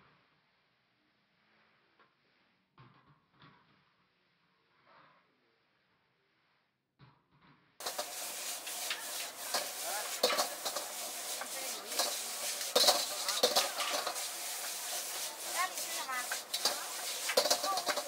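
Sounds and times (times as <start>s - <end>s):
metal tongs scraping wok: 7.8s - 18.0s
noodles sizzling in wok: 7.8s - 18.0s.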